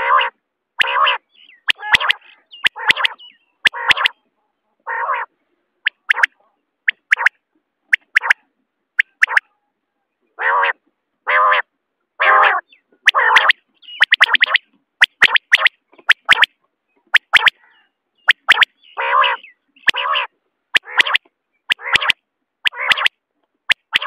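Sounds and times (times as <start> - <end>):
quail rasping calls: 0.0 - 4.2, 4.9 - 9.5, 10.4 - 23.1, 23.7 - 24.0
quail clicky notes: 0.8 - 4.2, 5.8 - 8.4, 9.0 - 9.5, 13.0 - 17.6, 18.2 - 24.0.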